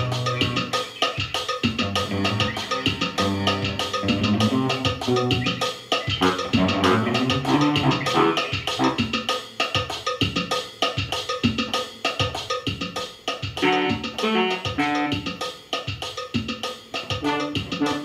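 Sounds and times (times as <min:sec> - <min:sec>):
electronic keyboard: 0:00.0 - 0:09.1
electric guitar: 0:01.8 - 0:09.0.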